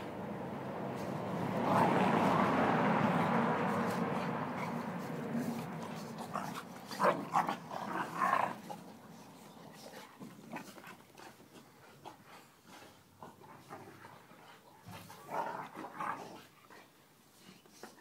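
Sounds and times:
dogs growling: 0:01.3 - 0:12.4.

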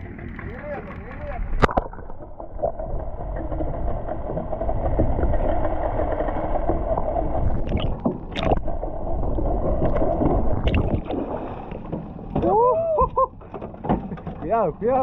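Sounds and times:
muffled underwater noise: 0:00.0 - 0:05.6.

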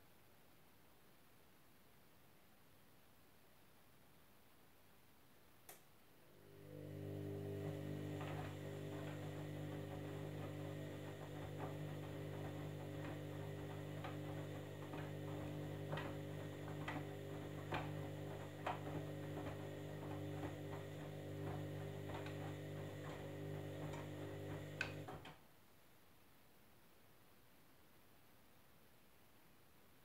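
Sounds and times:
washing machine motor hum: 0:06.2 - 0:25.4.

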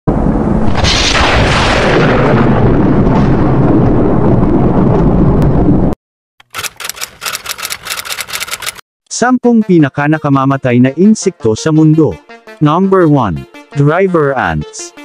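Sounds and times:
cinematic boom with rumbling tail: 0:00.1 - 0:06.0
typewriter clicks: 0:06.4 - 0:08.8.

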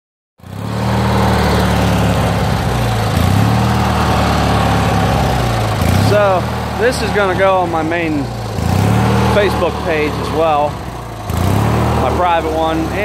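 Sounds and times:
garden tractor engine running: 0:00.4 - 0:13.0.

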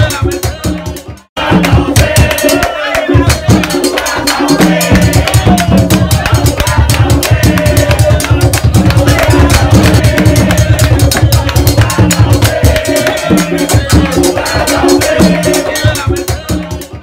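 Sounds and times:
busy drum beat: 0:00.0 - 0:17.0
repeating bass line: 0:03.1 - 0:15.8.

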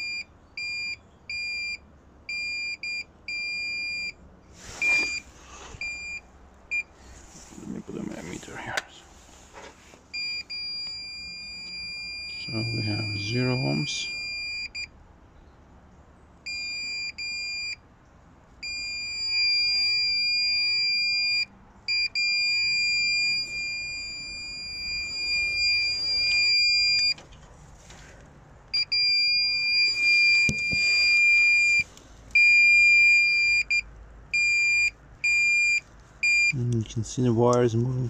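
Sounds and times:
multimeter continuity beeper tone: 0:00.0 - 0:04.2, 0:10.2 - 0:14.9, 0:16.4 - 0:17.8, 0:18.6 - 0:27.2, 0:28.7 - 0:36.7.

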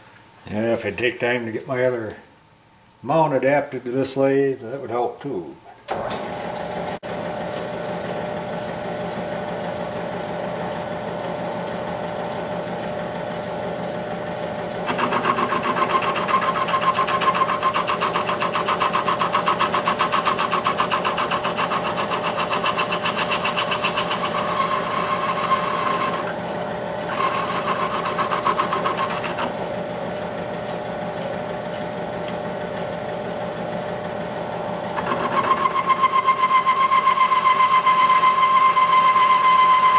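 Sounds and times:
lathe humming: 0:06.2 - 0:39.9
ringing whine of cutting tool: 0:14.8 - 0:26.4, 0:27.1 - 0:30.0, 0:34.7 - 0:39.9.

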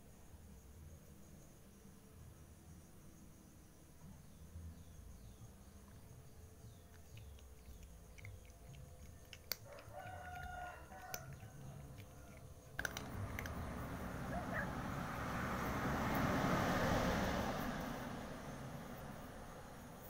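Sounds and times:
sharp clicks: 0:06.9 - 0:13.9
cat crunching dry kibble: 0:06.9 - 0:14.2
rooster crowing: 0:09.6 - 0:12.4, 0:14.2 - 0:15.0.

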